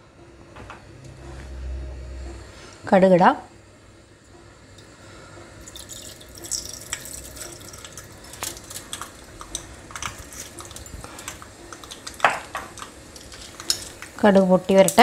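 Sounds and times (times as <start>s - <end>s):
seeds sizzling in hot oil: 5.6s - 15.0s.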